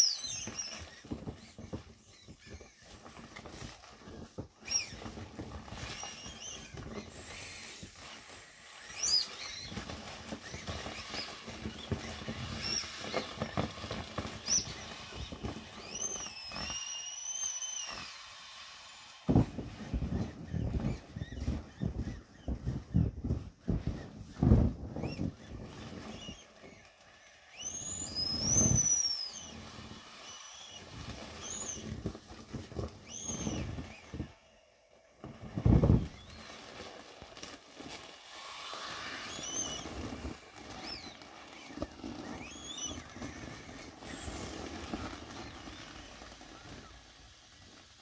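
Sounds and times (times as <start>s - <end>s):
squeaks of vinyl rubbing: 0.0s - 34.5s, 35.2s - 48.0s
plastic rustling: 0.0s - 48.0s
dull thumps: 19.3s - 26.9s, 35.2s - 36.6s.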